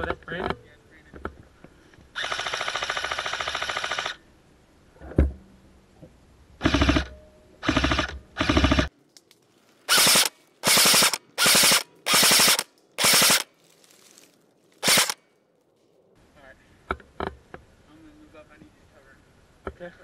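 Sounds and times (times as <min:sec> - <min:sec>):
airsoft rifles firing bursts: 0:09.9 - 0:13.5, 0:14.8 - 0:15.2.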